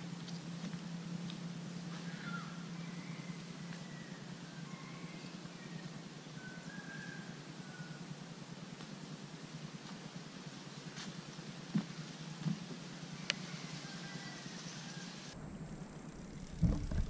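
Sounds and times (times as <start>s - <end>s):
steady low hum: 0.0s - 17.0s
faint bird calls: 1.5s - 8.3s.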